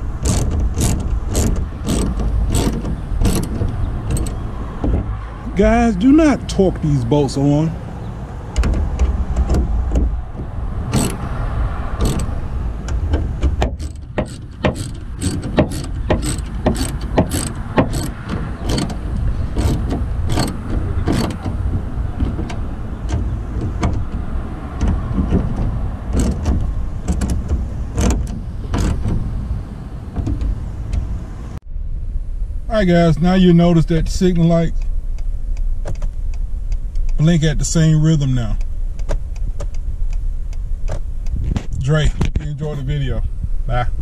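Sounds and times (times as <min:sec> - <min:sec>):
steady low rumble: 0:00.0 - 0:44.0
hand tool clicking: 0:13.5 - 0:19.0.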